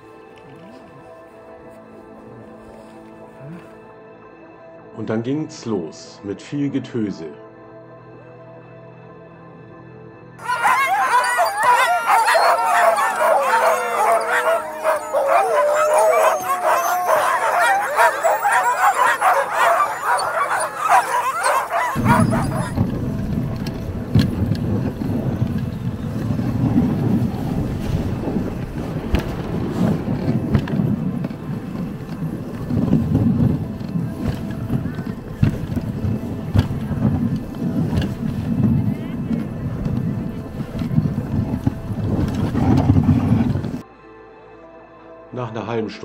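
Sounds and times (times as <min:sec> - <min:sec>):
huskies howling and barking: 0:10.4 - 0:43.8
low rushing rumble: 0:22.0 - 0:43.8.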